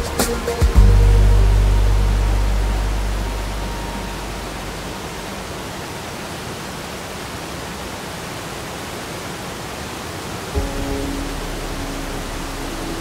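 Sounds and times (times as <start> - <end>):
background music: 0.0 - 5.6, 10.6 - 13.0
waterfall rushing: 0.0 - 13.0.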